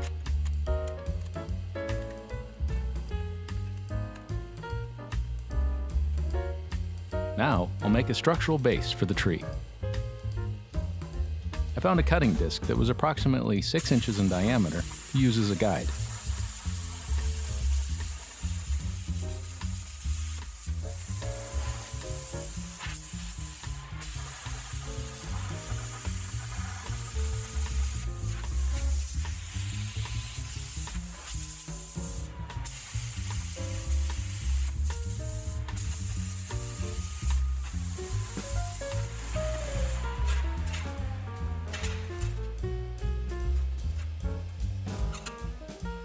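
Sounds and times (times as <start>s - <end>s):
background music with low beat: 0.0s - 46.0s
plasma cutter hissing: 13.7s - 42.4s.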